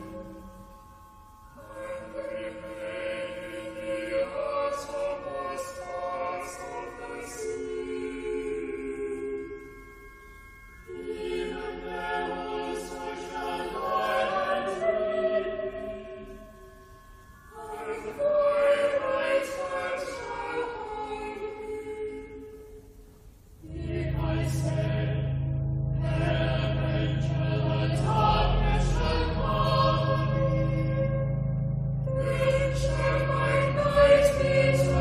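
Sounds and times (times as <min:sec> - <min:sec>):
choir singing chant: 0:00.0 - 0:00.8, 0:01.5 - 0:09.8, 0:10.9 - 0:16.6, 0:17.5 - 0:22.8, 0:23.6 - 0:25.4, 0:26.0 - 0:31.3, 0:32.0 - 0:35.0.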